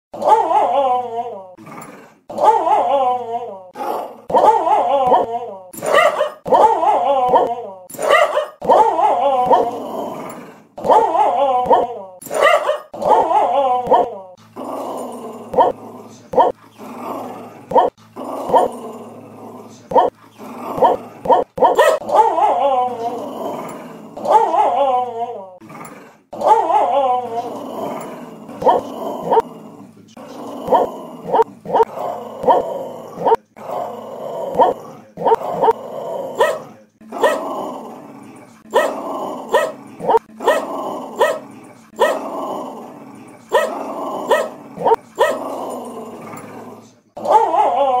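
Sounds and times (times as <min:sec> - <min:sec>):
dog barking: 0:00.2 - 0:00.7, 0:02.3 - 0:03.0, 0:03.8 - 0:09.7, 0:10.8 - 0:14.2, 0:15.5 - 0:15.8, 0:16.4 - 0:16.6, 0:17.7 - 0:18.7, 0:19.9 - 0:20.2, 0:20.8 - 0:22.7, 0:24.2 - 0:24.9, 0:26.4 - 0:27.0, 0:28.6 - 0:29.5, 0:30.7 - 0:33.4, 0:34.5 - 0:35.8, 0:36.4 - 0:37.4, 0:38.7 - 0:42.2, 0:43.5 - 0:45.4, 0:47.2 - 0:47.8
dog whining: 0:17.7 - 0:18.7, 0:28.6 - 0:29.4, 0:30.7 - 0:33.4, 0:34.5 - 0:35.8.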